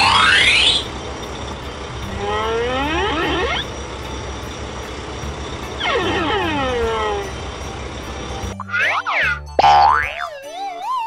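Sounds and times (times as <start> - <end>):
cartoon engine running: 0.0 - 1.0, 2.0 - 3.8, 5.4 - 10.2
falling-pitch sliding tones: 0.0 - 1.0, 2.2 - 4.0.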